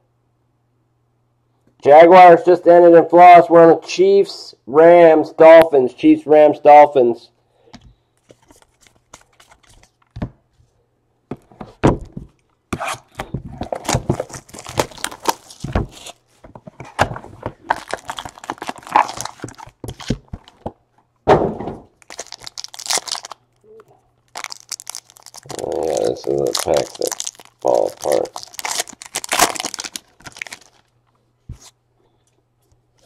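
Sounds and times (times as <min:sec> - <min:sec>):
wrapper tearing and crinkling: 0:12.9 - 0:16.2, 0:17.6 - 0:20.6, 0:22.0 - 0:23.6, 0:24.2 - 0:30.9.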